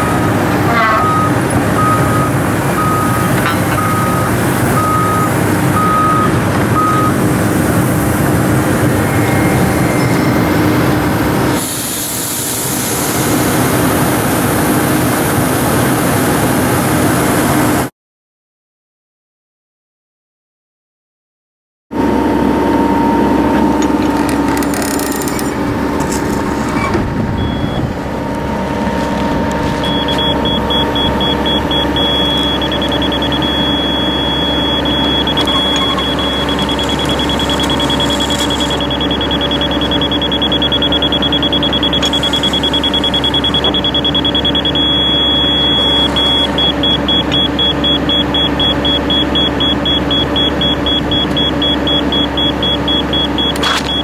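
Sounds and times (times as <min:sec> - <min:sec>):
hydraulic drive head running: 0:23.6 - 0:27.5, 0:29.2 - 0:54.0
digital level beeping: 0:29.8 - 0:54.0.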